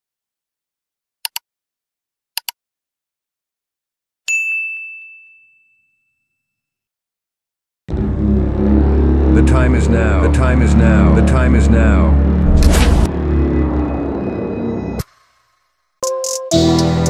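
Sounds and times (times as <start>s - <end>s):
mouse click sounds: 1.2s - 1.4s, 2.4s - 2.6s
notification bell ding: 4.3s - 6.3s.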